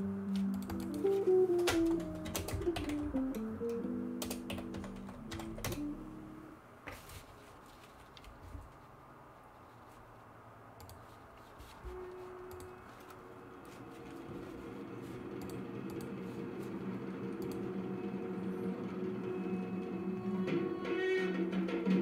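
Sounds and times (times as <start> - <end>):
slow background music: 0.0 - 6.6, 11.9 - 22.0.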